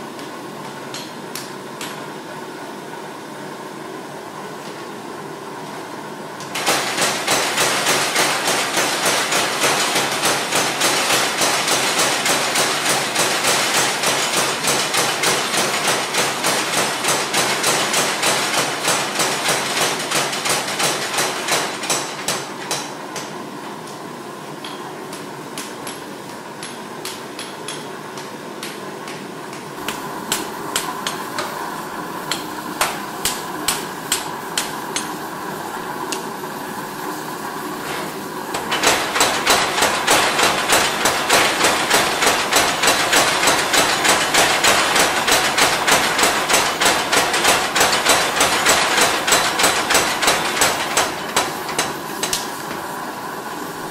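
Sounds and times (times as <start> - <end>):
power hammer pounding steel: 38.6 - 52.4.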